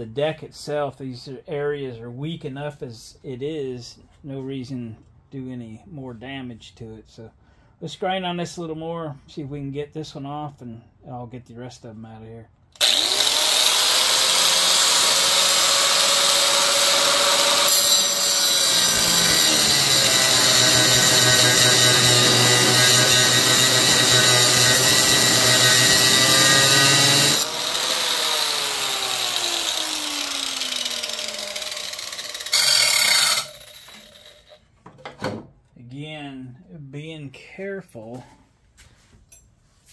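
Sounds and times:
angle grinder cutting metal: 12.8s - 34.6s.

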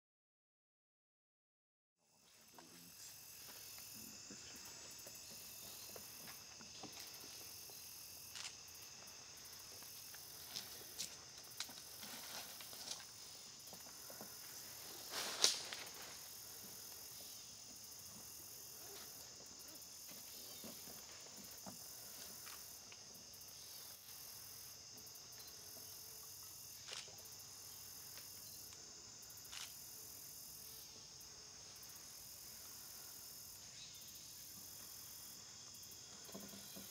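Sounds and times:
high-pitched insect chorus: 2.1s - 36.9s.

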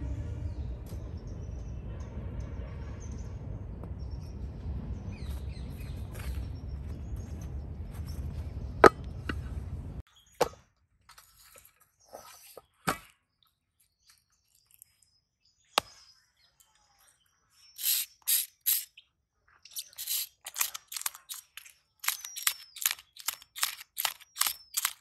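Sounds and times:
low rumble: 0.0s - 10.0s
birds chirping: 0.0s - 10.5s, 12.0s - 25.0s.

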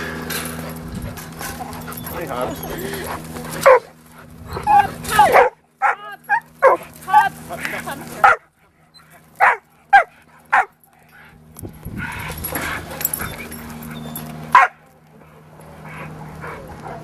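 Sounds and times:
dog barking: 3.6s - 3.9s, 5.3s - 6.9s, 8.2s - 8.5s, 9.4s - 10.8s, 14.5s - 14.8s.

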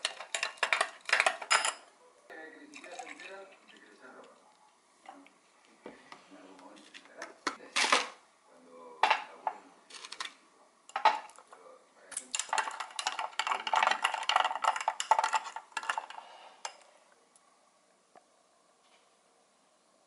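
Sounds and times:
hard objects clattering and clinking: 0.0s - 1.9s, 10.9s - 16.8s.

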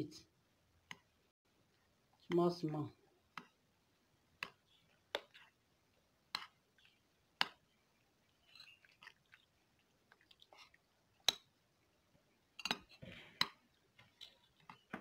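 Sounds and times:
spoon scraping through wet paste: 4.3s - 11.6s, 12.6s - 15.0s.

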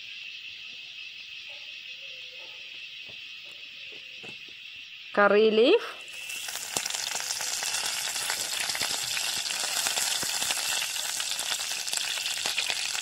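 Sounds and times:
leaves sizzling in hot oil: 4.9s - 13.0s.

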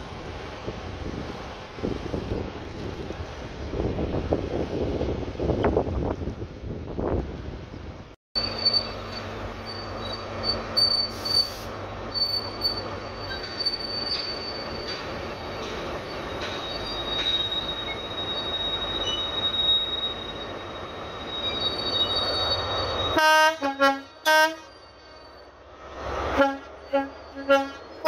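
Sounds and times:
rumble of train wheels: 0.0s - 28.0s
train wheel squeal: 8.4s - 23.2s, 24.1s - 28.0s
train horn blasts: 23.2s - 24.8s, 26.3s - 28.0s.

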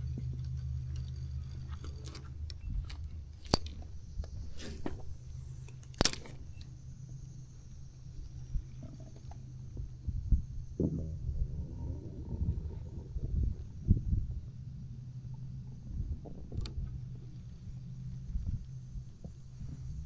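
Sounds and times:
steady low rumble: 0.0s - 20.0s
brief hiss: 4.5s - 5.8s.

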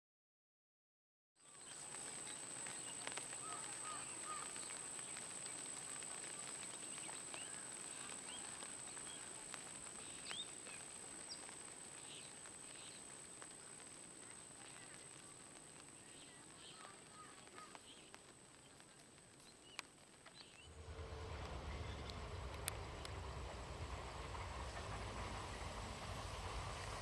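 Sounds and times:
bird chirps: 1.4s - 18.8s
soft hiss: 1.4s - 27.0s
high-pitched whine: 20.6s - 27.0s.

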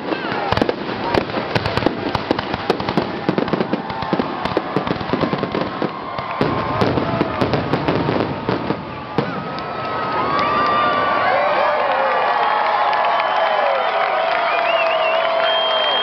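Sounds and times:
fireworks bursting and crackling: 0.0s - 11.2s.

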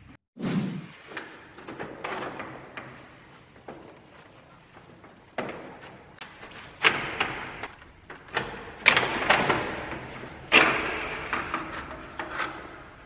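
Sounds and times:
plastic knocks and clunks: 1.2s - 13.0s.

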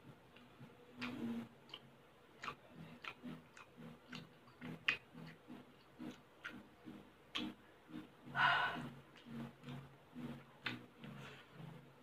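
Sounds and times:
wet chewing mouth smacks: 1.0s - 6.7s, 7.3s - 7.6s.

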